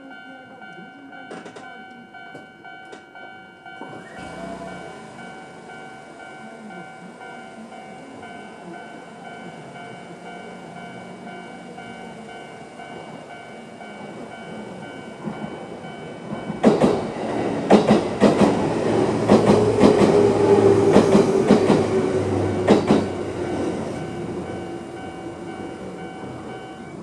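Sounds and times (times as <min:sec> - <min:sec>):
level crossing bell ringing: 0:00.0 - 0:16.6, 0:23.0 - 0:27.0
train wheels clacking over rail joints: 0:14.1 - 0:23.2.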